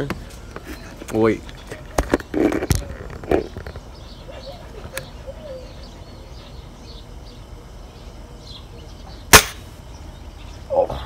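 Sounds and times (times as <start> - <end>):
air gun shot: 9.3 - 9.7.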